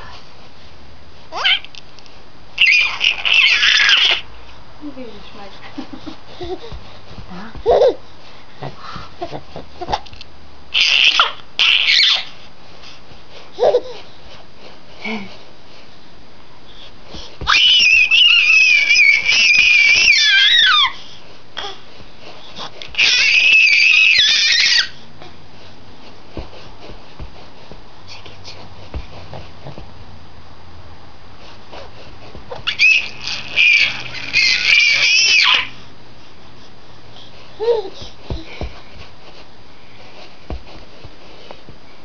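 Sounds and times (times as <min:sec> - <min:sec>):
baby squealing: 0:01.3 - 0:01.7, 0:02.6 - 0:04.3, 0:10.7 - 0:12.4, 0:17.5 - 0:21.0, 0:22.9 - 0:25.0, 0:32.6 - 0:35.8.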